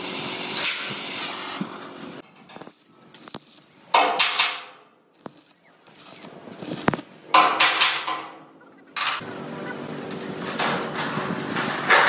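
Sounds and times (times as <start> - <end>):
steel parts clattering and scraping: 2.0 - 9.3, 10.0 - 12.0.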